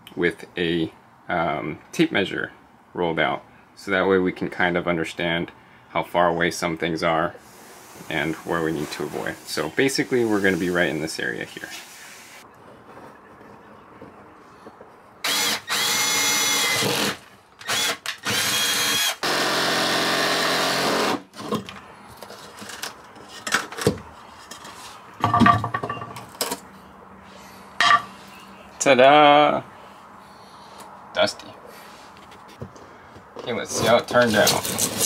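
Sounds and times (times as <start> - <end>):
jigsaw cutting plywood: 15.2 - 21.5
light knocks and scrapes: 31.9 - 35.0.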